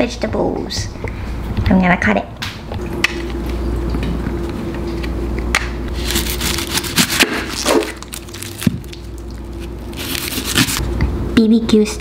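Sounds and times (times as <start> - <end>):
rustling and crunching mushrooms: 5.9 - 10.8.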